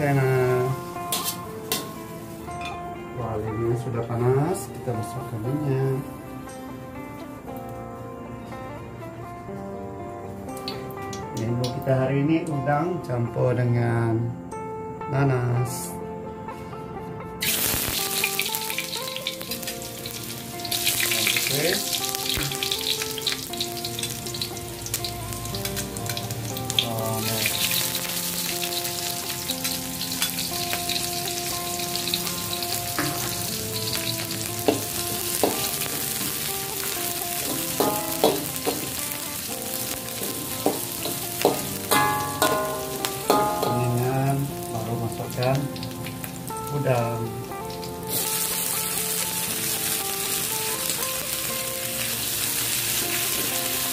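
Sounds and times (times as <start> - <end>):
garlic and onion sizzling in oil: 0.0 - 2.9, 17.4 - 53.9
quiet background music: 0.0 - 53.9
metal spatula scraping wok: 1.1 - 2.0
sharp taps on wok: 37.5 - 39.0, 41.4 - 43.8.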